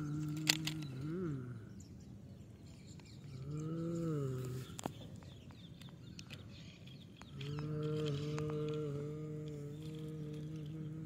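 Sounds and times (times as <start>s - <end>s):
toy plastic clicks: 0.0s - 0.9s.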